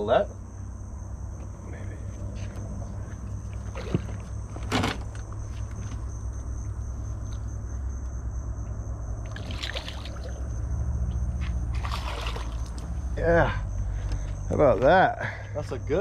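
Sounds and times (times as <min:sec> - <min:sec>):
high insect drone: 0:00.0 - 0:16.0
fish splashing in water: 0:09.2 - 0:10.6, 0:11.7 - 0:13.0.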